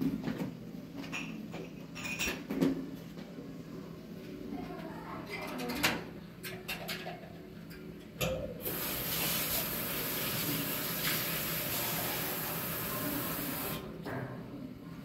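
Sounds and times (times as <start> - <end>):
tap water running into metal sink: 8.3 - 13.9.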